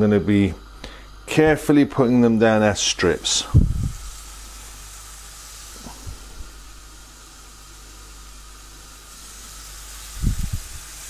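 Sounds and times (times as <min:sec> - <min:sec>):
chicken sizzling on a griddle: 0:02.8 - 0:11.0.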